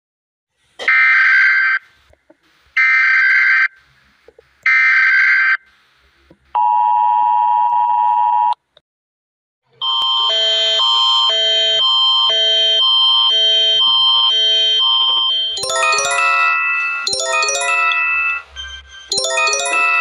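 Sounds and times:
two-tone attention signal: 15.1 - 20.0
alert tone: 15.6 - 20.0.

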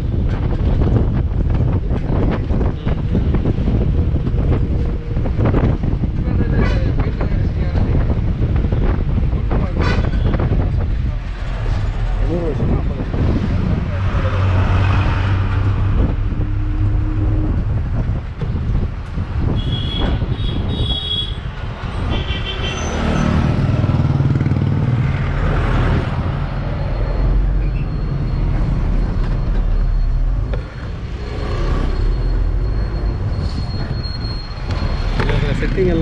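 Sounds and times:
road noise: 0.0 - 36.0.

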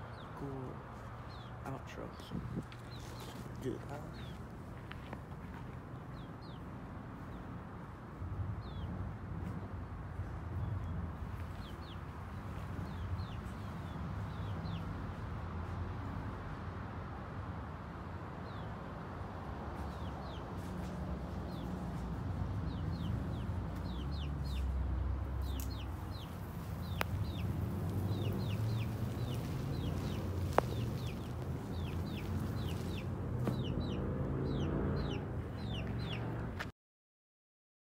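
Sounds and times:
chickens clucking and chirping: 0.0 - 7.6, 19.7 - 36.4.

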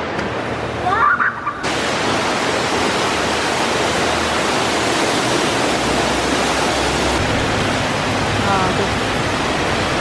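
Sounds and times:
fountain water splashing: 0.0 - 10.0.

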